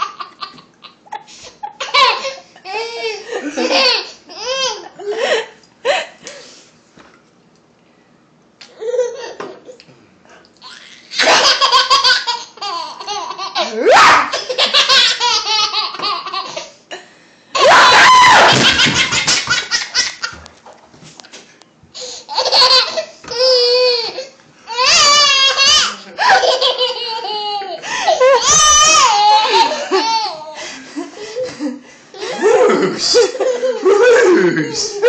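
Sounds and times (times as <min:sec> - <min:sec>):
baby laughing: 0:00.0 - 0:05.1, 0:10.6 - 0:16.7, 0:22.3 - 0:30.6.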